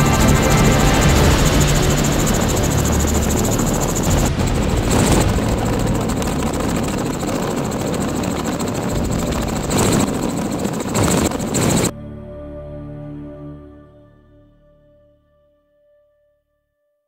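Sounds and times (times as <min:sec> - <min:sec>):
helicopter rotor chop: 0:00.0 - 0:11.9.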